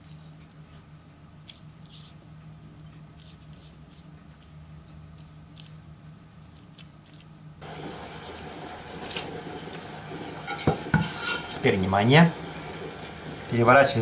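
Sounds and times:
brush dabbing sauce: 0.0s - 7.4s
low steady hum: 0.0s - 14.0s.

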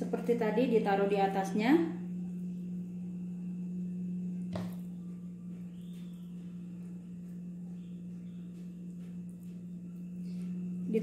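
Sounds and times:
steady low hum: 0.0s - 11.0s
light knock on bowl: 4.5s - 4.9s.

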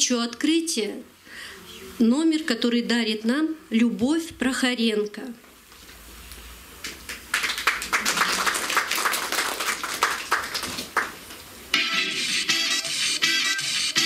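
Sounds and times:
audience applauding: 6.8s - 11.2s
music: 11.7s - 14.0s.

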